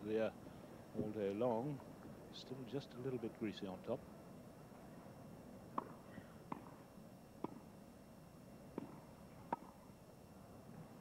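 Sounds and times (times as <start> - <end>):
tennis ball struck: 8.8 - 9.7.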